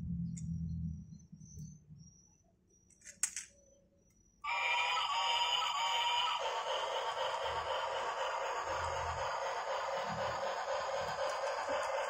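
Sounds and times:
electronic toy music: 4.4 - 12.0.

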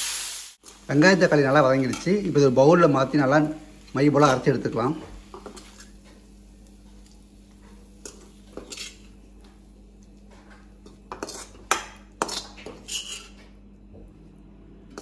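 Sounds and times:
metal spatula scraping: 8.0 - 9.1, 11.1 - 13.4.

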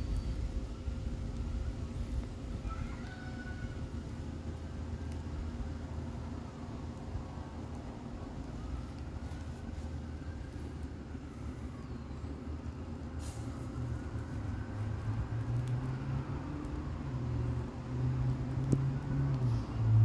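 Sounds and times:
vehicle engine rumble: 0.0 - 20.0.

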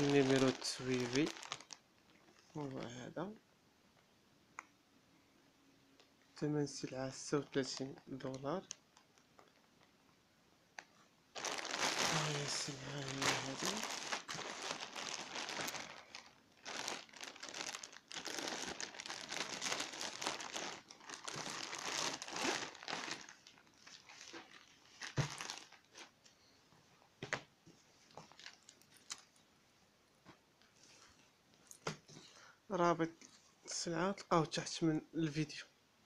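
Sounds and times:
plastic bag crinkling: 0.0 - 2.9, 11.3 - 26.1, 28.1 - 29.3.

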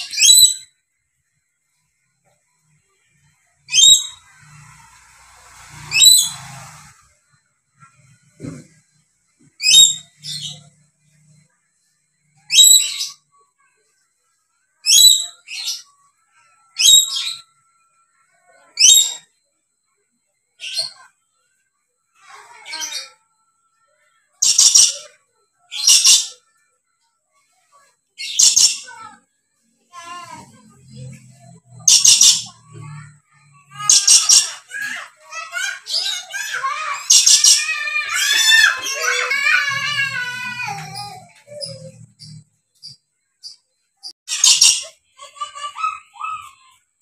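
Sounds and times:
parrot screeching: 3.7 - 4.5, 5.8 - 6.9, 24.4 - 25.0, 25.7 - 26.4, 31.8 - 32.5, 33.7 - 41.8, 44.3 - 46.6.

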